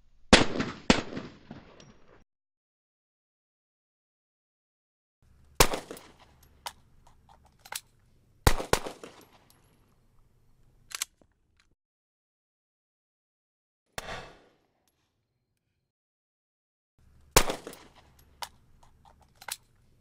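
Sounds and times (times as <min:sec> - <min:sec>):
pistol shots echoing: 0:05.6 - 0:06.3, 0:08.5 - 0:09.4, 0:17.3 - 0:18.1
pistol handling clicks: 0:05.6 - 0:09.6, 0:10.6 - 0:11.3, 0:17.4 - 0:19.9.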